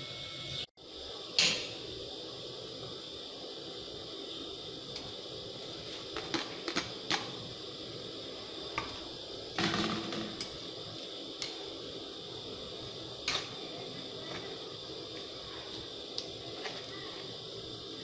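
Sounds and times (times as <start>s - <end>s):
steady hiss: 0.0s - 18.0s
tongs clicking on a wok: 10.4s - 10.6s, 11.4s - 11.6s.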